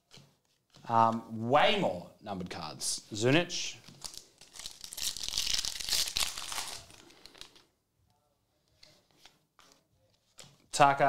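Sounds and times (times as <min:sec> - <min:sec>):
foil wrapper tearing and crinkling: 0:04.0 - 0:07.6.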